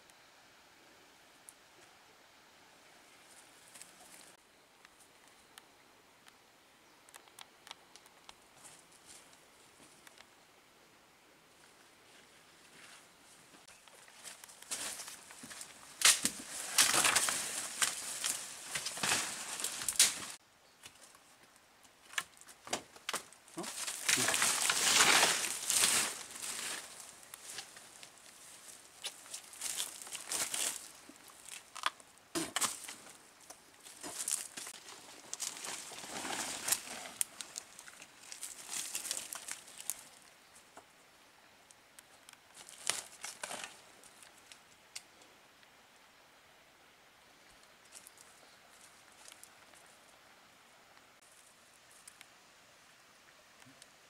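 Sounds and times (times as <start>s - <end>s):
leaves and undergrowth rustling: 3.0s - 5.4s, 11.5s - 40.9s, 42.0s - 45.1s, 47.6s - 50.2s
twigs snapping: 13.8s - 21.2s, 22.0s - 40.3s, 42.0s - 45.1s
twig snapping: 16.0s - 21.0s, 31.4s - 35.8s.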